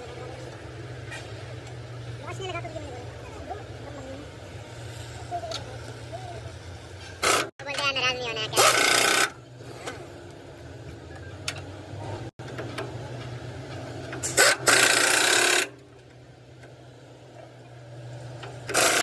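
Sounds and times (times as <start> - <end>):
engine humming: 9.2 - 19.0.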